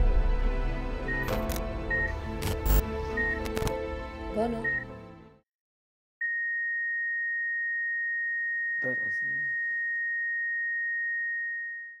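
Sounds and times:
monitor continuous high tone: 6.2s - 12.0s.

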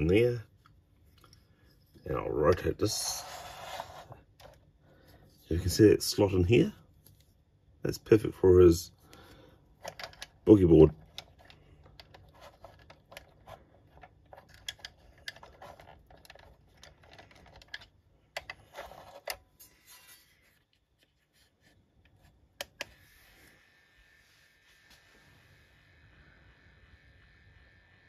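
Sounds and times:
plastic toy parts clicking: 9.8s - 19.4s.

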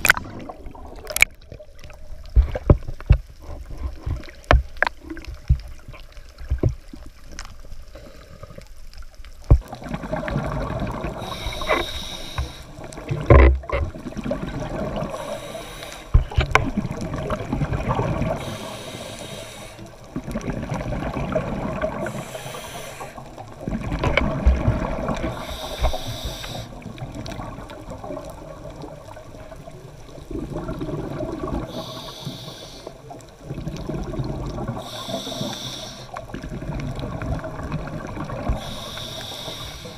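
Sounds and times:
regulator hiss on inhale: 7.8s - 8.7s, 11.1s - 12.9s, 15.0s - 16.4s, 18.3s - 20.0s, 22.0s - 23.4s, 25.2s - 26.8s, 31.6s - 33.2s, 34.7s - 36.3s, 38.5s - 39.9s
bubbling rush on exhale: 9.6s - 13.3s, 13.9s - 39.9s.

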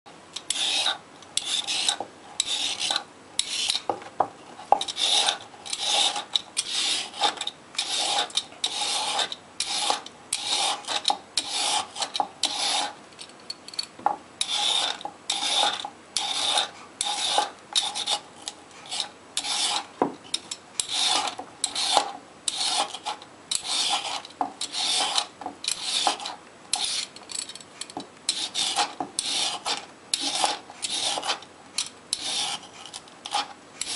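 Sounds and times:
peeler scraping carrot: 0.4s - 3.9s, 4.6s - 13.0s, 14.4s - 33.9s.

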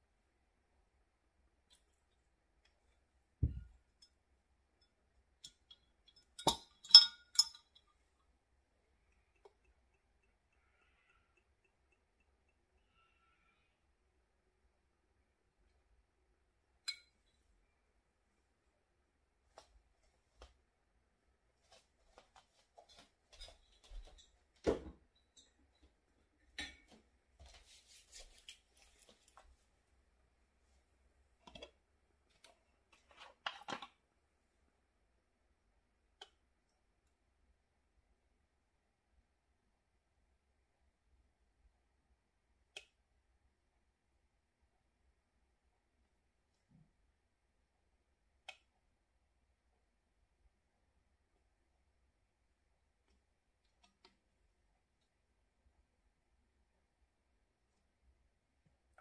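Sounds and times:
soft low thump: 3.4s - 3.7s
glass bottle clinking: 5.4s - 7.9s.

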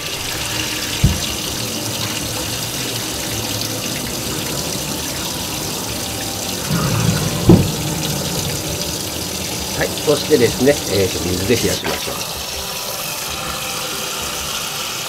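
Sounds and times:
water running into a steel sink: 0.0s - 15.0s
knock: 1.0s - 1.3s, 6.7s - 8.5s.

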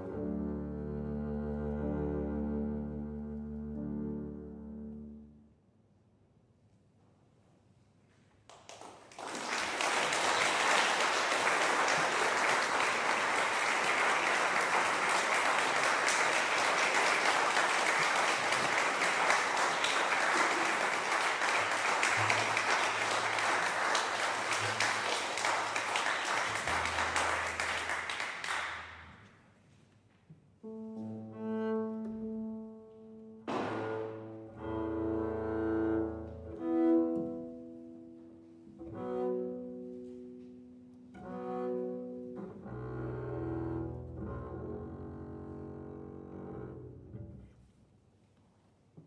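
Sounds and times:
bowed double bass: 0.0s - 5.4s, 21.6s - 25.8s, 26.4s - 29.2s, 30.6s - 47.8s
piano accompaniment: 0.0s - 5.4s, 11.5s - 29.2s, 30.6s - 46.7s
audience applauding: 8.5s - 29.1s.

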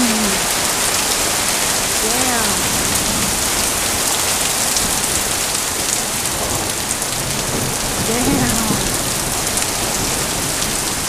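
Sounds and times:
person shouting: 0.0s - 0.4s, 8.1s - 8.9s
heavy rain pouring: 0.0s - 11.0s.

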